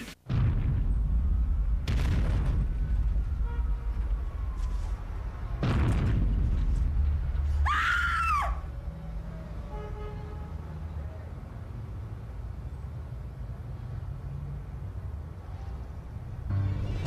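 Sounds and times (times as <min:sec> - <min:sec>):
heavy booms: 0:00.2 - 0:04.6, 0:05.4 - 0:07.6
woman screaming: 0:07.7 - 0:08.6.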